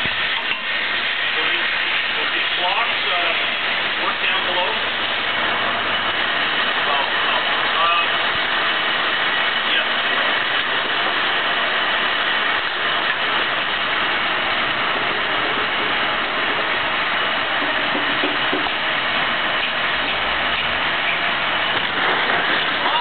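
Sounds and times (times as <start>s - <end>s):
steady machinery noise: 0.0s - 23.0s.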